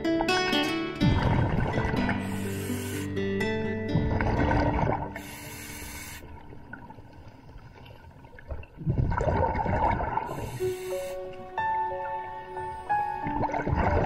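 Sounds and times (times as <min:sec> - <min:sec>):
exhaled bubbles underwater: 0:01.0 - 0:03.0, 0:03.9 - 0:11.1, 0:12.9 - 0:14.0.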